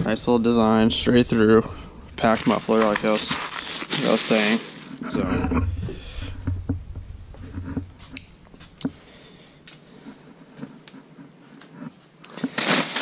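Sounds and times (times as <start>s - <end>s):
low handling rumble: 0.0s - 3.0s, 5.2s - 9.6s
bubble wrap crinkling: 2.2s - 5.1s, 12.2s - 13.0s.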